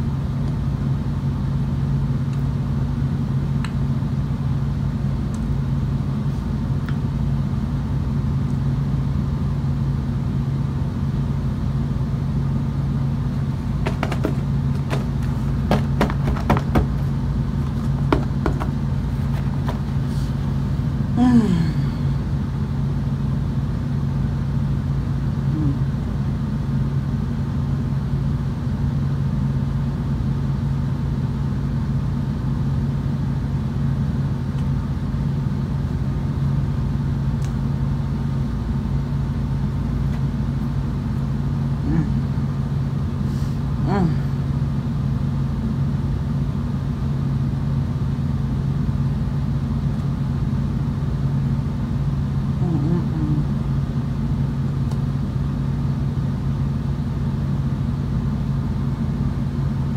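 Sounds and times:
low hum: 0.0s - 30.1s.

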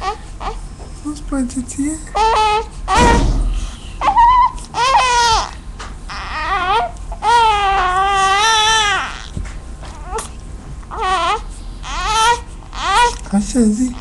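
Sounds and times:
infant crying: 2.2s - 3.1s, 4.0s - 13.2s.

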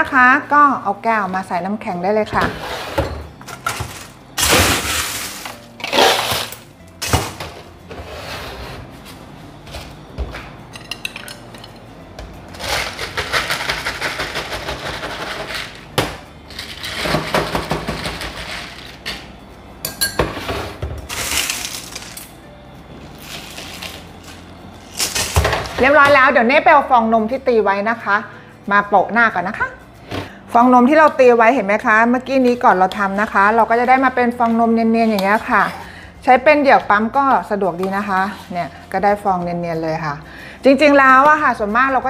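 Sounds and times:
ice cubes clattering into plastic cup: 3.6s - 6.6s, 21.1s - 22.2s.

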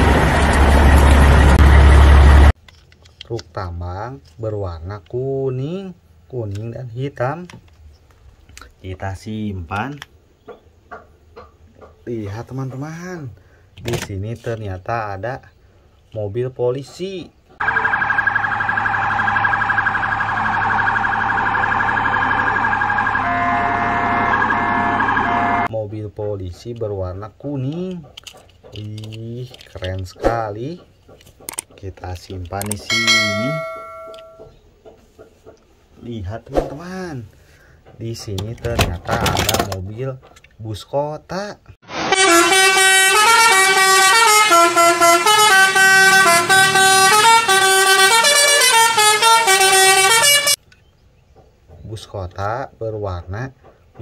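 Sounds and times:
horn-like melody: 17.6s - 25.7s, 41.9s - 50.6s
police siren warbling: 17.6s - 25.7s, 41.9s - 50.6s.

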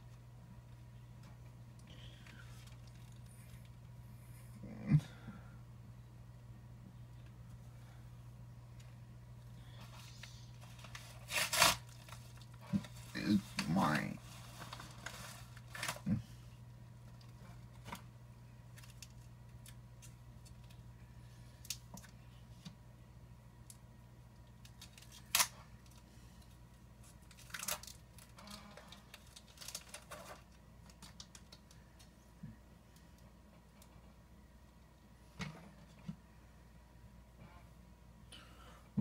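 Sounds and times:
low steady hum: 0.0s - 39.0s
package being opened by hand: 10.2s - 12.9s, 24.6s - 26.0s, 27.0s - 31.7s.

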